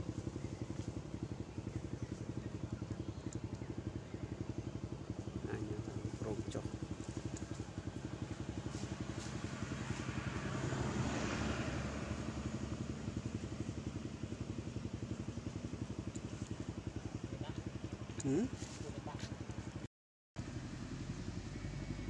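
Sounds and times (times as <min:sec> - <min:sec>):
engine running with low pulse: 0:00.0 - 0:22.0.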